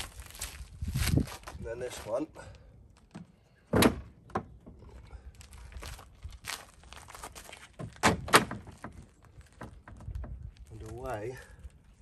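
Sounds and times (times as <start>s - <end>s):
plastic creaking and rustling: 5.4s - 11.8s.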